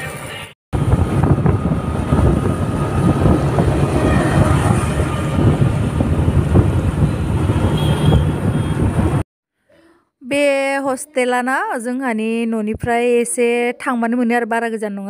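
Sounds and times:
road and engine noise: 0.0 - 9.2
wind buffeting microphone: 0.8 - 9.2.

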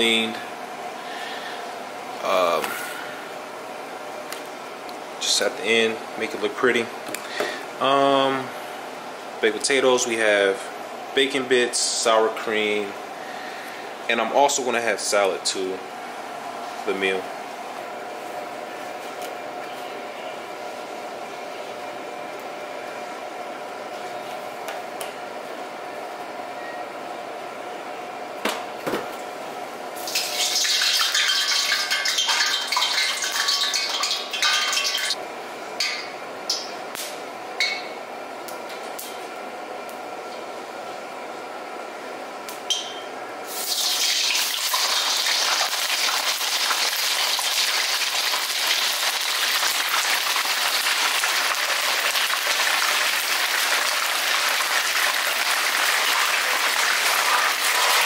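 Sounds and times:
fish sizzling in hot oil: 30.0 - 35.2, 43.5 - 58.0.

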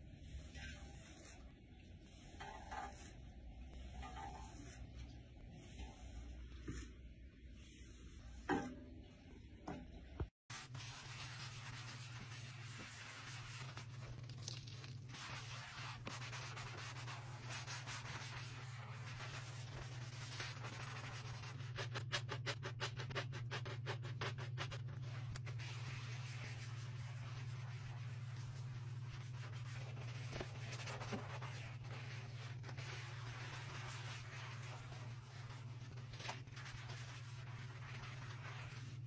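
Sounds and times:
gloved hand scrubbing countertop: 10.5 - 39.0.

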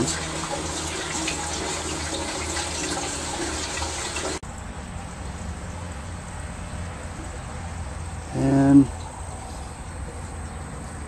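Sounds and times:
water rushing into tank: 0.0 - 4.4.

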